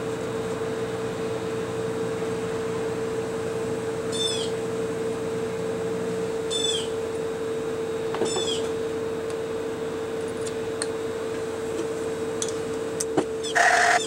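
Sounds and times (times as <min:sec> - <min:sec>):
steady machine hum: 0:00.0 - 0:14.0
high-pitched squeaky chirps: 0:13.4 - 0:14.0.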